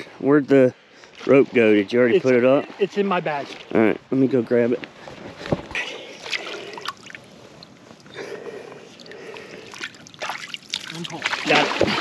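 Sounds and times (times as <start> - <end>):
water sloshing and splashing: 5.3 - 12.0.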